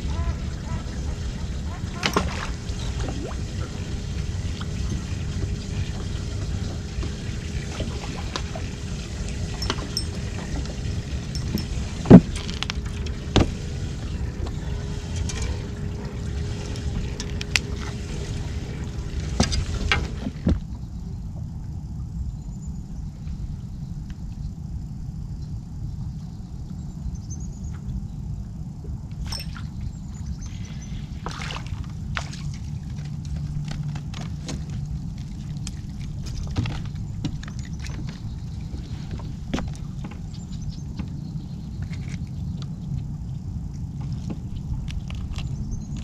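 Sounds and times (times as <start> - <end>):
faint steady hum: 0.0 - 46.0
low rumble: 0.0 - 46.0
knocks and thumps on a boat: 9.5 - 13.6, 19.2 - 20.8, 31.2 - 42.2, 43.9 - 46.0.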